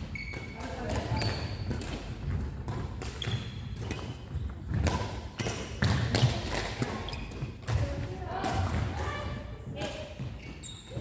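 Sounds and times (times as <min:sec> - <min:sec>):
shoe squeaks on floor: 0:00.0 - 0:01.8, 0:03.2 - 0:04.4, 0:07.0 - 0:07.6, 0:10.2 - 0:11.0
rackets striking shuttlecock: 0:00.2 - 0:09.0.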